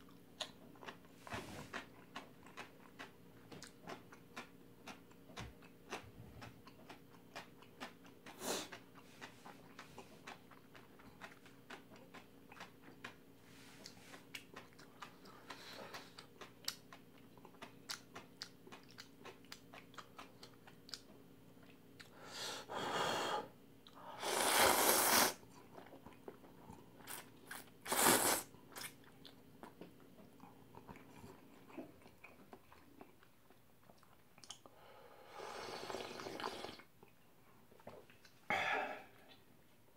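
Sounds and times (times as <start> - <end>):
close-up chewing: 0.0 - 22.2, 25.4 - 34.9
noodle slurps: 24.2 - 25.4, 27.8 - 28.5, 35.4 - 36.9.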